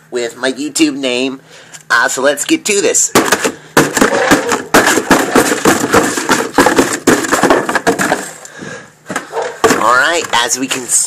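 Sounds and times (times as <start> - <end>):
cardboard box tearing: 3.8 - 8.4.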